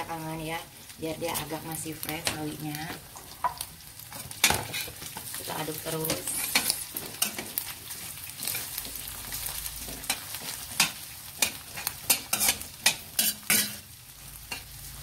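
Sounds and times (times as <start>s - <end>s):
hot oil sizzling: 0.0s - 15.0s
spatula scraping a metal pan: 3.4s - 5.2s, 9.8s - 14.8s.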